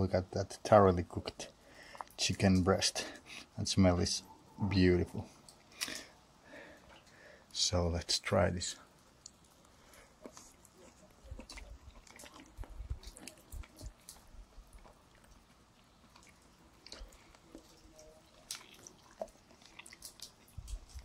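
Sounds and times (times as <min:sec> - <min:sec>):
person chewing: 0:01.7 - 0:02.2, 0:05.3 - 0:07.2, 0:09.0 - 0:21.0.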